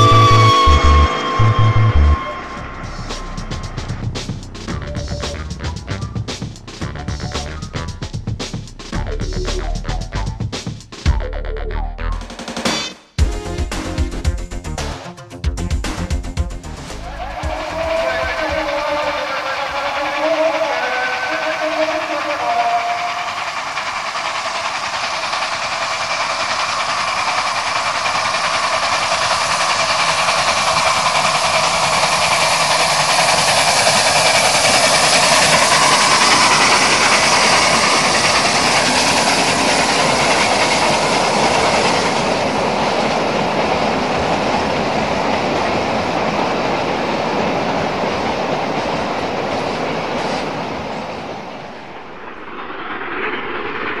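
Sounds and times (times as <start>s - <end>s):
model trains rumbling: 0.0s - 10.5s, 16.9s - 53.8s
wheels clacking over rail joints: 17.0s - 51.3s.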